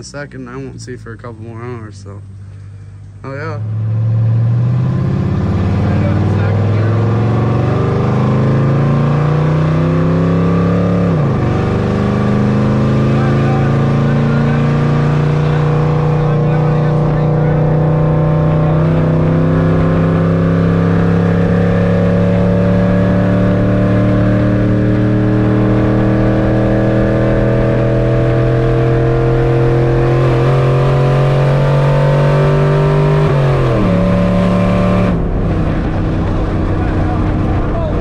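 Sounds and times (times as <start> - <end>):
engine pulling in cab: 0.0 - 38.0
transmission shifting up: 0.0 - 38.0.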